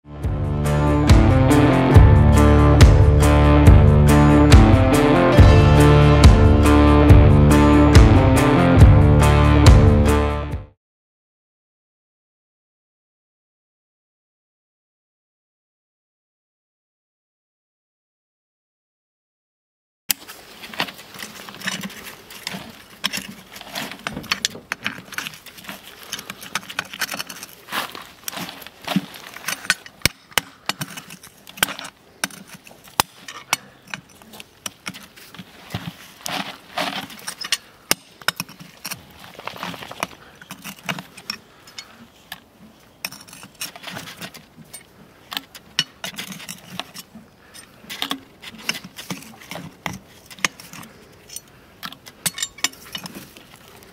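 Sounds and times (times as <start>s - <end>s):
metallic clicks creaks and scrapes: 20.1s - 53.9s.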